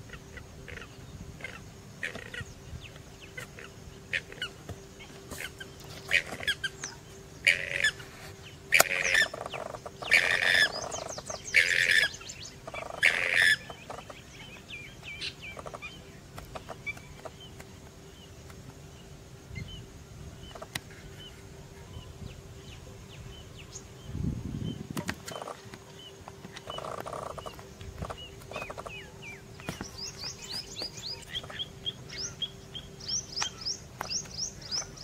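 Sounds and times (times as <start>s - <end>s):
bird chirps: 0.1s - 18.3s, 20.5s - 35.0s
harsh bird squawks: 7.4s - 8.0s, 8.7s - 14.0s.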